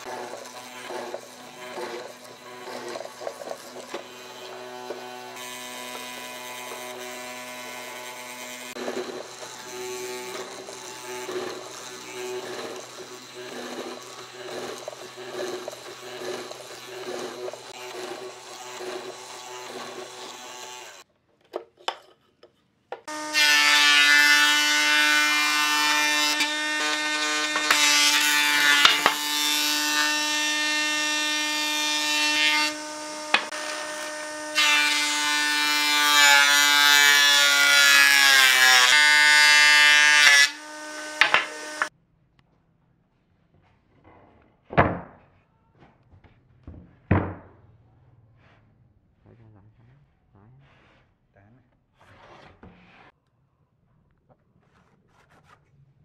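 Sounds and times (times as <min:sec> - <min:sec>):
power tool motor running: 0:00.0 - 0:21.0, 0:23.1 - 0:41.9.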